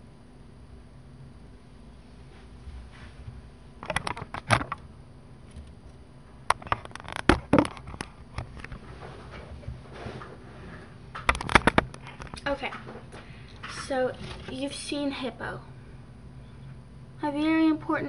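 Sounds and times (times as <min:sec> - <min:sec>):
camera handling knocks and rustles: 0:03.8 - 0:04.8, 0:06.5 - 0:08.8, 0:11.1 - 0:13.0.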